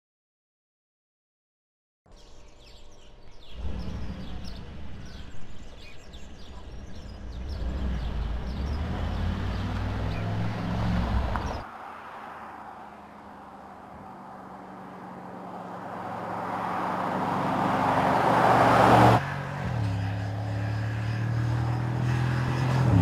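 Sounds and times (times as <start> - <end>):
birds chirping: 2.1 - 19.2, 19.9 - 23.0
distant engine hum: 3.0 - 23.0
car exhaust roaring: 7.1 - 23.0.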